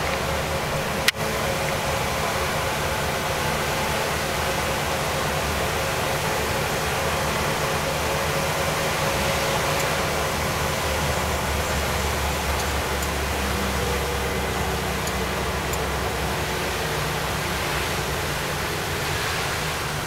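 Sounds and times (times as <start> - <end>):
road and tyre noise: 0.0 - 20.0
truck engine running: 0.0 - 20.0.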